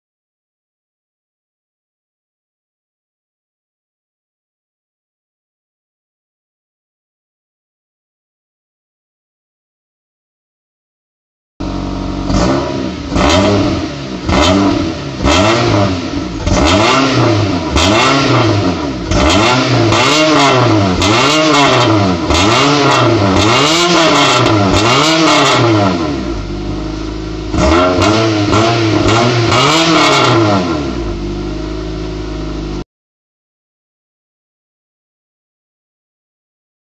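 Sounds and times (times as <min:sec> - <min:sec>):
car engine revving: 0:11.6 - 0:32.8.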